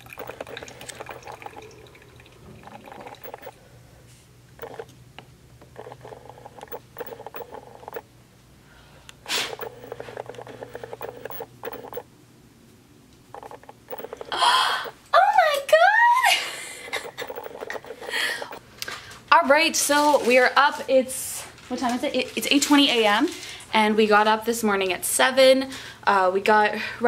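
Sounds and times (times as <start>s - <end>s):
liquid pouring and gurgling: 0.0s - 3.6s
steady low hum: 0.0s - 15.2s.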